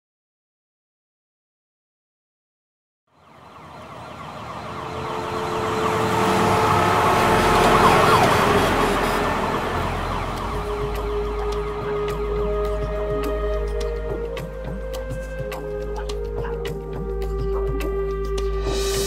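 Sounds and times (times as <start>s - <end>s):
city traffic noise: 3.1s - 16.9s
siren wailing: 3.2s - 17.7s.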